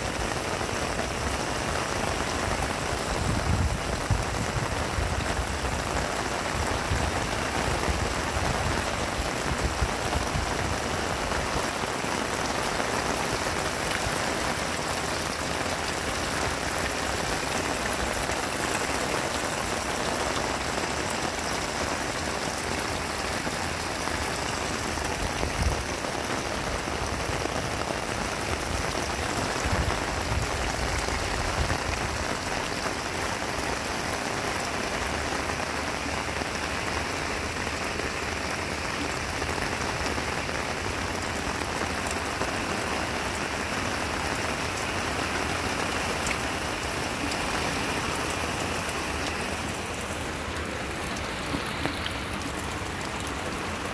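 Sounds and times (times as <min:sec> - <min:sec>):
heavy rain on corrugated roof: 0:00.0 - 0:53.9
water pouring into rain barrel: 0:00.0 - 0:53.9.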